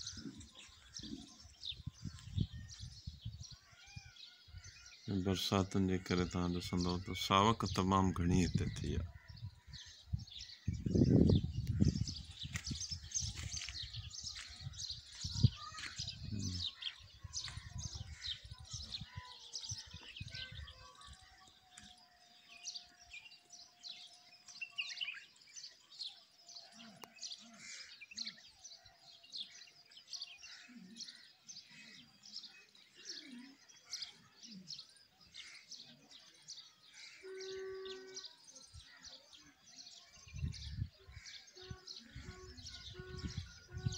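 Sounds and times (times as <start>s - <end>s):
small birds chirping: 0.0s - 43.9s
low rumble on microphone: 8.6s - 16.6s, 42.1s - 43.9s.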